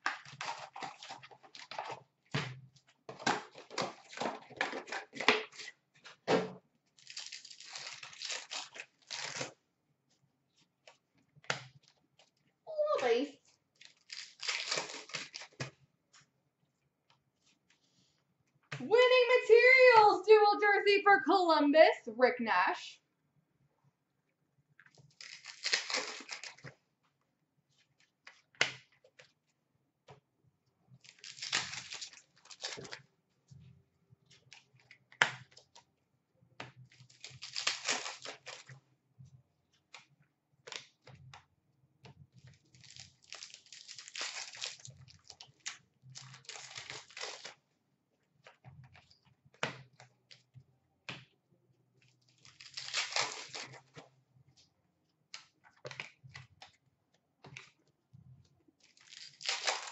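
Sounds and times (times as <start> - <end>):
card pack wrappers tearing and crinkling: 0.0 - 2.0, 7.0 - 9.6, 13.8 - 15.8, 25.0 - 26.7, 31.0 - 33.0, 36.9 - 38.8, 42.7 - 47.6, 52.3 - 54.0, 58.8 - 59.9
cards clicking and snapping: 34.4 - 35.8, 48.4 - 51.3, 55.3 - 56.8.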